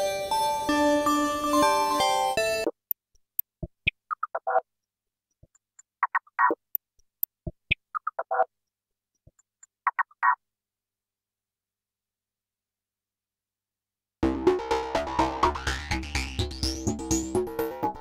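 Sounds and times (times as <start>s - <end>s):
electronic clicks and chirping blips: 2.4s - 10.4s.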